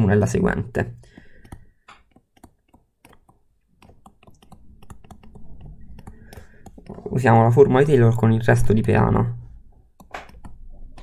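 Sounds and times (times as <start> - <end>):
stylus tapping on tablet screen: 1.0 - 7.2, 9.8 - 11.0.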